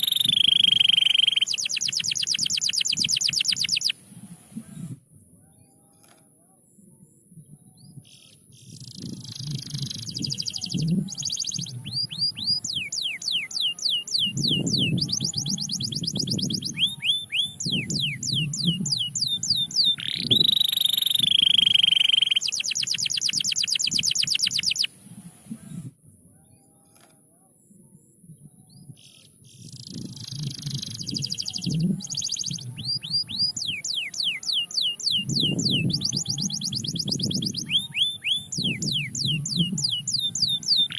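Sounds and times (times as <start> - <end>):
canary singing: 0.0 - 4.0, 8.6 - 25.0, 29.6 - 40.9.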